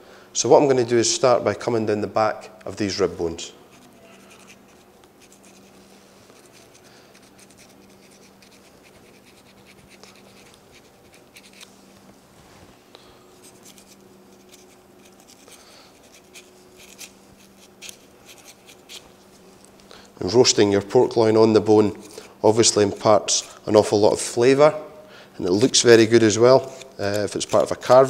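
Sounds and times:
low steady hum: 0.0s - 28.0s
knife scraping along bones: 3.6s - 11.7s, 13.4s - 19.7s, 21.9s - 23.6s, 25.4s - 28.0s.

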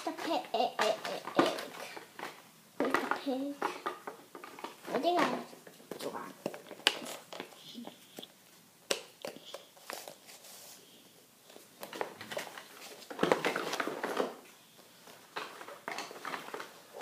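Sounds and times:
rustling and clatter: 0.0s - 7.6s, 11.5s - 17.0s.

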